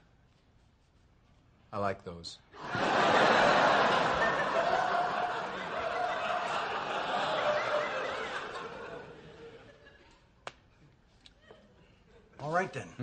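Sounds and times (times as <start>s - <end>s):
studio audience laughing: 2.6s - 10.3s.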